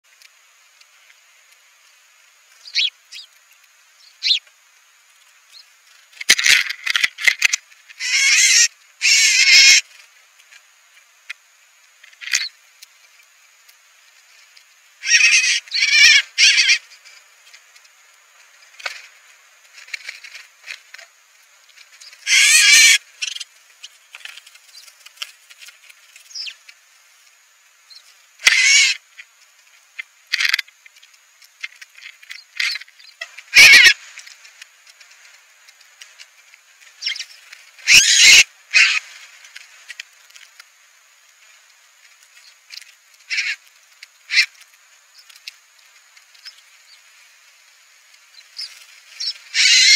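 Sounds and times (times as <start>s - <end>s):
wings fluttering: 1.8s - 49.9s
small birds chirping: 2.5s - 6.2s, 7.4s - 9.8s, 12.0s - 13.3s, 14.0s - 18.0s, 21.8s - 26.8s, 27.7s - 29.3s, 30.0s - 34.0s, 36.8s - 39.0s, 42.2s - 47.2s, 48.1s - 49.9s.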